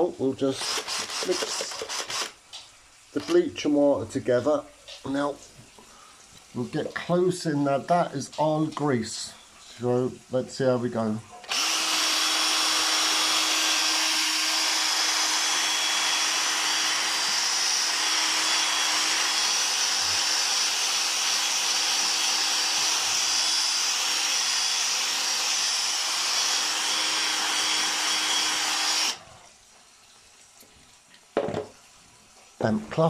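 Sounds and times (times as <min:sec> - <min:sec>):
drill motor whine: 0:00.6 - 0:02.3, 0:11.5 - 0:29.2.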